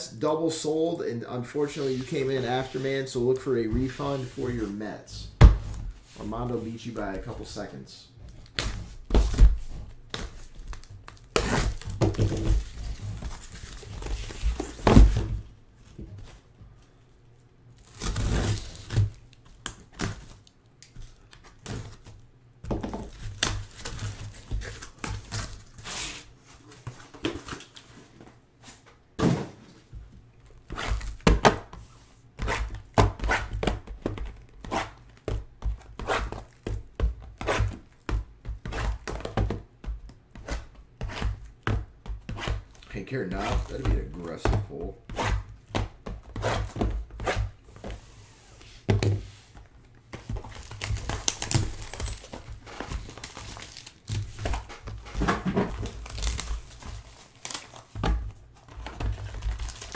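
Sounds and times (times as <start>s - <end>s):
cardboard scraping: 8.6s - 15.4s
cardboard boxes thunking on table: 11.4s - 13.5s, 14.2s - 15.4s, 29.2s - 29.7s, 54.2s - 56.2s.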